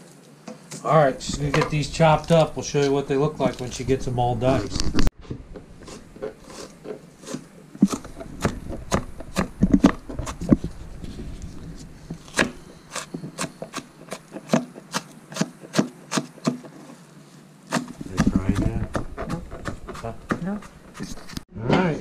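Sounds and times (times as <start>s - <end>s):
knife chopping on cutting board: 17.7s - 21.2s.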